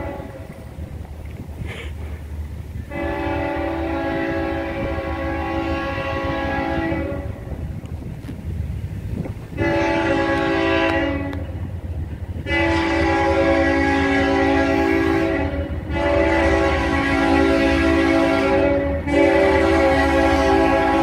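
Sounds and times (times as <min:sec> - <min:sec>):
locomotive horn blasts: 0:00.0 - 0:00.6, 0:02.8 - 0:07.6, 0:09.5 - 0:11.7, 0:12.3 - 0:21.0.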